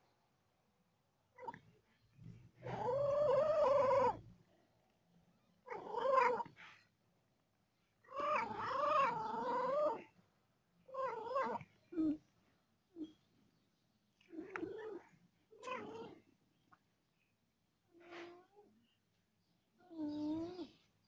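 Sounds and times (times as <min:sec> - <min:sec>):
cat meowing: 0:10.9 - 0:12.2, 0:15.6 - 0:16.2.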